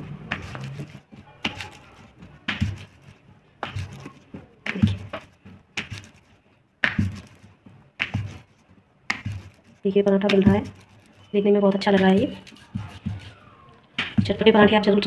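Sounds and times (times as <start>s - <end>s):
rolling pin knocking on stone board: 6.8s - 7.4s, 9.1s - 10.8s.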